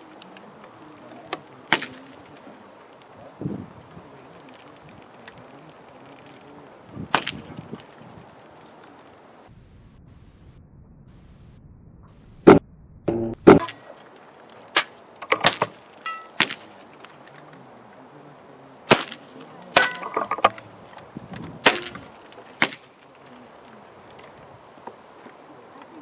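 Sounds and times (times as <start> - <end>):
air rifle cracks: 14.7 - 17.4, 21.4 - 23.0.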